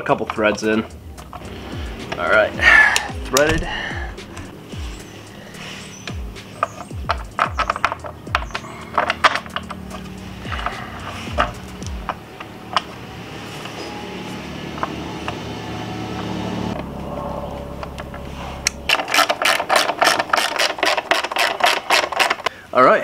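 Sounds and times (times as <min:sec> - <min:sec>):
low steady hum: 0:00.0 - 0:21.0
hand ratchet clicking: 0:00.2 - 0:13.0, 0:18.6 - 0:22.5.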